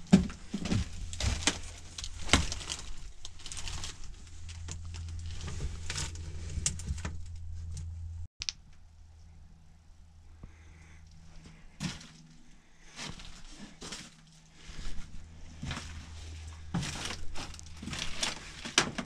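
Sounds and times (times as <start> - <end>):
footsteps crunching over debris: 0.0 - 6.2, 11.3 - 19.0.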